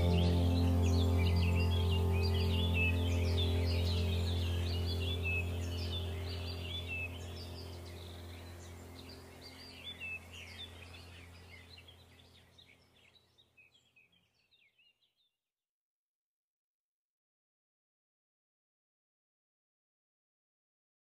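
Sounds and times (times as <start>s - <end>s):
steady low hum: 0.0s - 12.6s
birds chirping: 0.0s - 15.3s.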